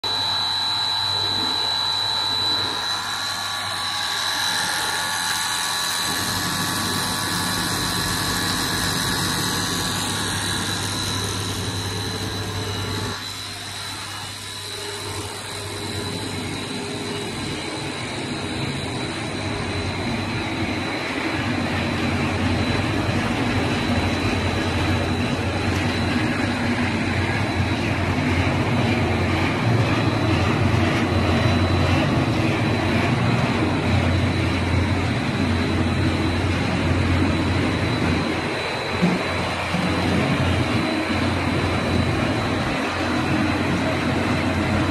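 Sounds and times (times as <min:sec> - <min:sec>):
low machine hum: 0:00.0 - 0:44.9
machine high whine: 0:00.0 - 0:44.9
rushing machine noise: 0:00.0 - 0:44.9.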